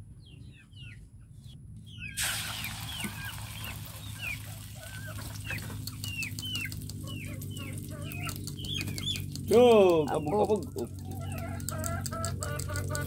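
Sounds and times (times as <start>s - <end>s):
chickens clucking: 1.9s - 13.0s
egg sizzling in hot oil: 2.2s - 5.9s.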